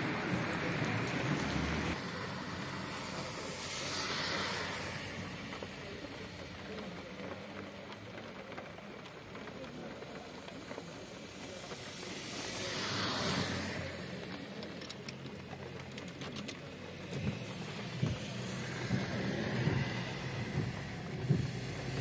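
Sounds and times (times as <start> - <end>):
heavy rain hiss: 0.0 - 22.0
tyres on wet road: 0.0 - 22.0
low rumbling bumps: 16.7 - 22.0.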